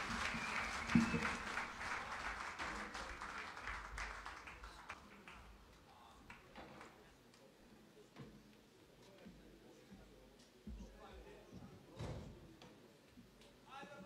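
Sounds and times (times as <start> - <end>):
audience applauding: 0.0 - 5.6.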